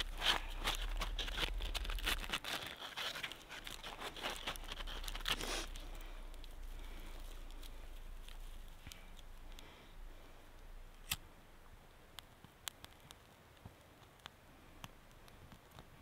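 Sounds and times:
bark scraping and rustling: 0:00.0 - 0:05.8
crunching snow: 0:00.0 - 0:09.1.

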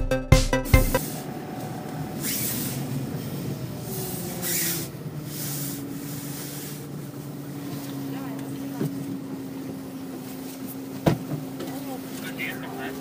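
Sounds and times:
brief hissing whooshes: 0:00.8 - 0:01.3, 0:02.2 - 0:03.4, 0:04.0 - 0:06.9
car engine and road hum: 0:01.0 - 0:13.0.

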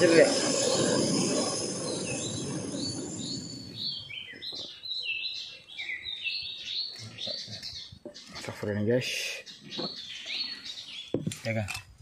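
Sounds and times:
low rushing noise: 0:00.0 - 0:04.2
birds chirping: 0:00.0 - 0:11.7.

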